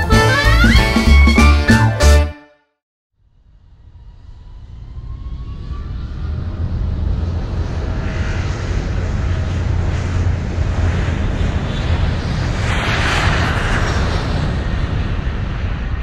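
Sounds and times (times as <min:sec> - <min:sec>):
low rumble of vehicle engines: 0:03.2 - 0:16.0.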